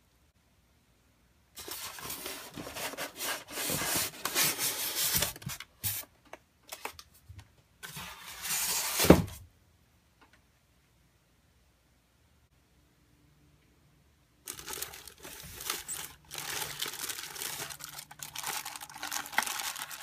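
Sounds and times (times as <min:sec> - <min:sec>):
styrofoam scraping cardboard: 0:01.6 - 0:06.0.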